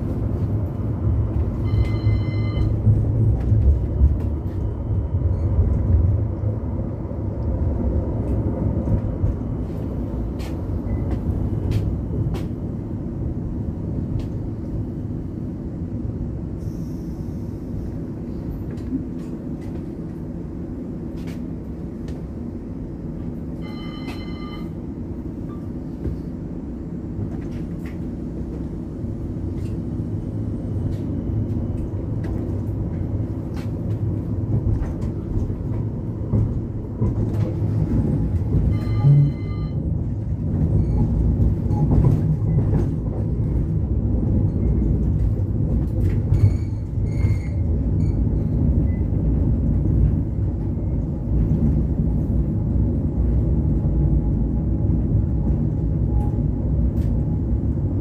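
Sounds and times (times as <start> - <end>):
tram wheels rumbling: 0.0 - 58.0
brief ringing tone: 1.6 - 2.8, 23.6 - 24.8, 38.7 - 39.8.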